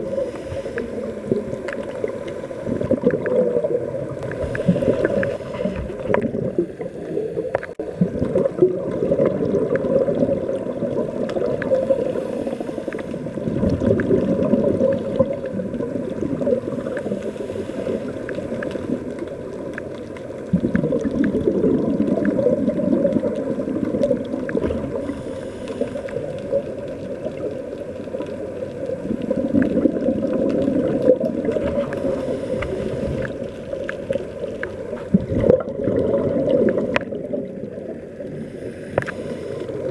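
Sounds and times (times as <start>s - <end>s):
muffled underwater rush: 0.0s - 39.9s
faint clicks: 0.6s - 3.4s, 17.9s - 21.4s, 23.0s - 35.6s, 36.8s - 39.9s.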